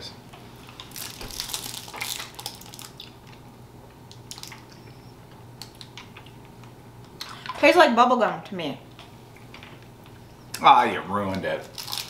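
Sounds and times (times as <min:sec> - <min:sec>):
plastic candy wrapper crinkling: 0:00.8 - 0:03.4, 0:04.1 - 0:04.7, 0:11.4 - 0:12.0.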